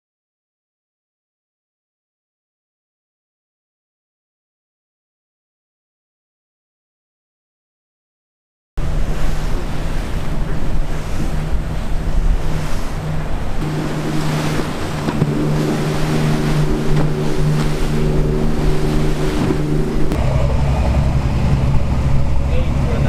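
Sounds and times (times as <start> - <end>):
boat engine drone: 8.8 - 23.0
rushing water and spray: 8.8 - 23.0
wind buffeting microphone: 8.8 - 23.0.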